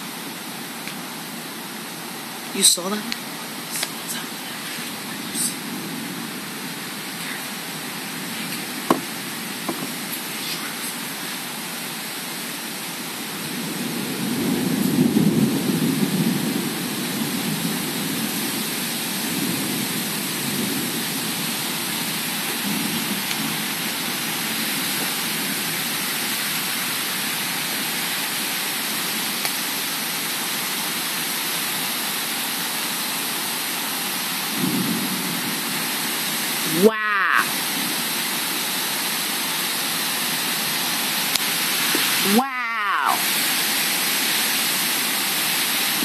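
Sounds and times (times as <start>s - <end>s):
heavy rain pouring: 0.0s - 46.0s
thunder rumble: 13.5s - 25.7s, 34.5s - 36.1s.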